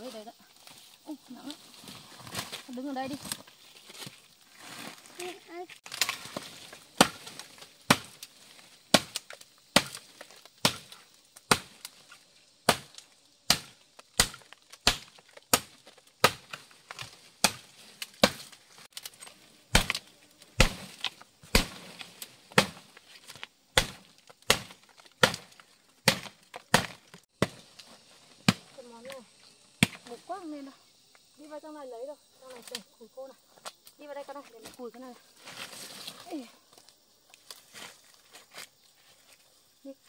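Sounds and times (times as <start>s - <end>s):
machete chopping wooden branch: 5.8s - 29.1s, 29.8s - 30.1s.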